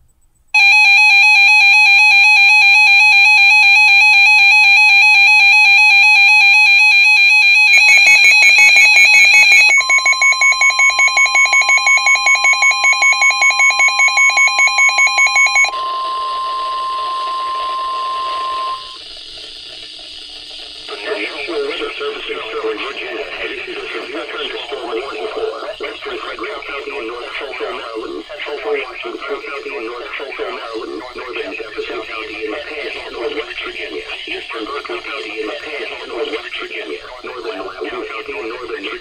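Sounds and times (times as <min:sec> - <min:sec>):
warbling alert alarms: 0:00.6 - 0:19.2
fast-pulsing alarm: 0:00.6 - 0:39.0
steady warning tone: 0:00.6 - 0:39.0.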